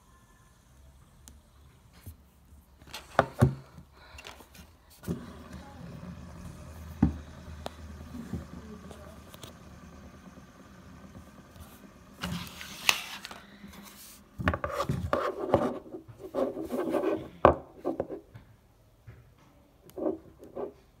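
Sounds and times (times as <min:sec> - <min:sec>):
plastic scraping on table: 0:12.2 - 0:18.2.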